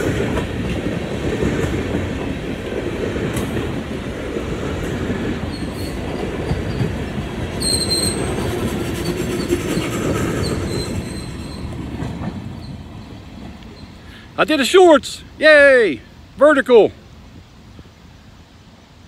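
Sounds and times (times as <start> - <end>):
freight cars rumbling on rails: 0.0 - 19.0
high wheel squeal: 5.4 - 7.0, 7.6 - 12.0, 12.6 - 14.2.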